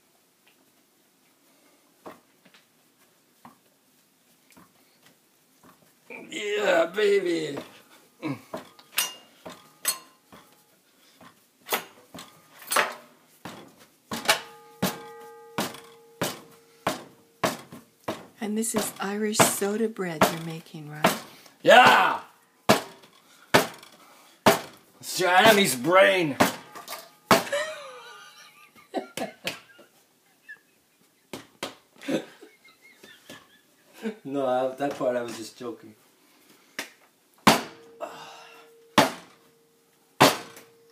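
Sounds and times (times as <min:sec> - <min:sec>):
soft dough handling noise: 0:00.1 - 0:06.2
dishes and utensils clinking: 0:08.6 - 0:10.6, 0:11.7 - 0:17.8, 0:26.4 - 0:28.2
dough slaps and knocks: 0:24.4 - 0:24.8, 0:39.0 - 0:39.3, 0:40.2 - 0:40.6.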